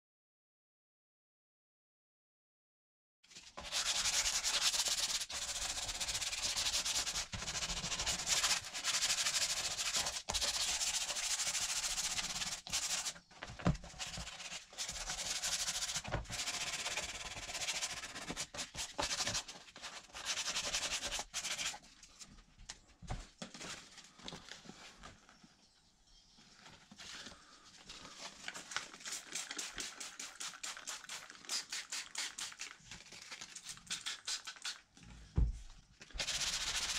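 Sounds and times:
sandpaper rubbing on plastic: 3.6s - 13.2s, 13.9s - 21.8s, 28.9s - 32.8s, 36.2s - 36.9s.

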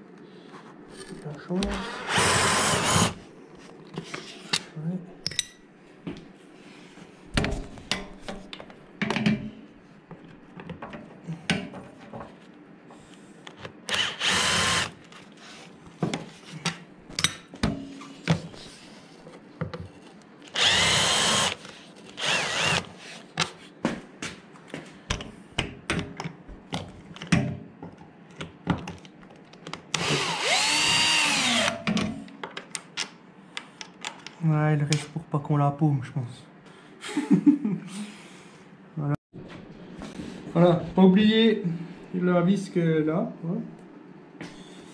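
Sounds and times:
cordless drill driving screws: 1.7s - 3.2s, 13.9s - 15.0s, 20.5s - 21.6s, 22.2s - 22.9s, 30.0s - 31.8s
clicks and knocks of tools: 31.7s - 35.0s.

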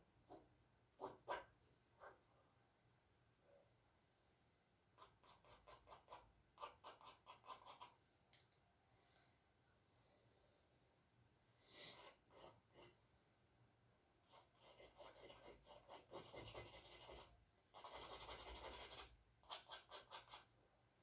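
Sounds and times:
charcoal scratching on canvas: 14.3s - 20.5s.

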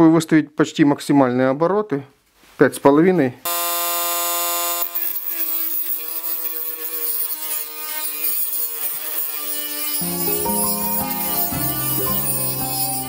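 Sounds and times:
rotary tool grinding steel: 3.5s - 13.0s
music: 10.0s - 13.0s.

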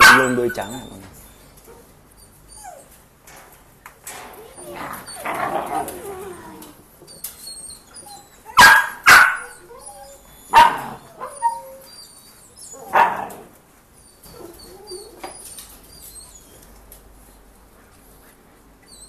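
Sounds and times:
dog barking: 0.0s - 0.5s, 8.6s - 9.6s, 10.5s - 11.0s, 12.9s - 13.3s
dog yipping: 0.0s - 3.0s, 4.4s - 16.7s.

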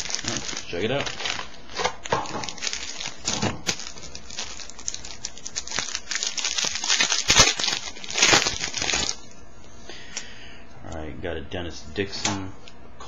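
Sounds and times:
wrapper crinkling as torn open: 0.0s - 9.3s.

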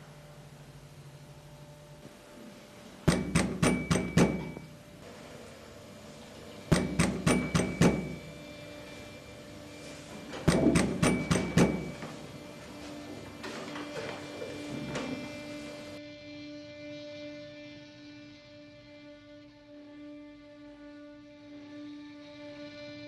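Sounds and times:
sharp knocking: 3.1s - 4.7s, 6.7s - 8.3s.

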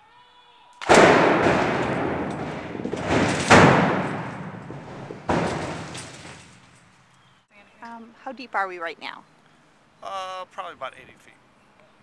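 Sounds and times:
explosion booms: 0.8s - 6.6s.

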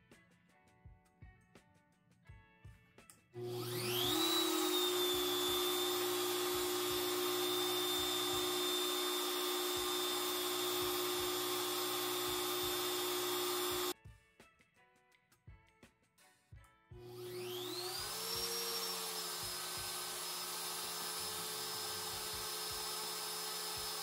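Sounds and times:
router motor whining: 3.4s - 13.9s, 17.0s - 24.0s.

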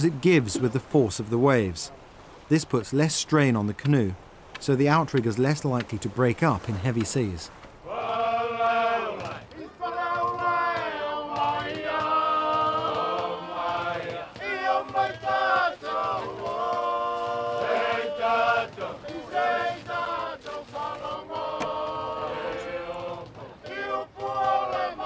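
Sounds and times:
group of voices singing: 7.8s - 25.0s.

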